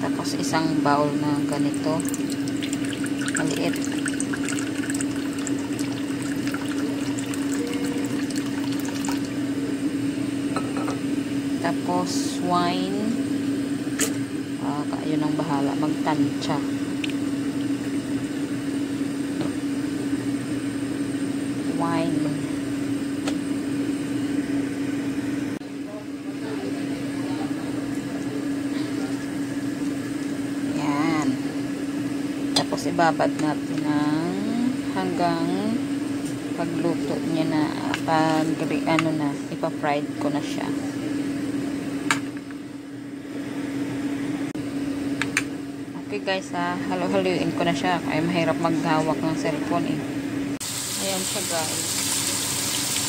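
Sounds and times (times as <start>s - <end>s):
steady low hum: 0.0s - 51.8s
liquid pouring into glass bowl: 1.8s - 9.4s.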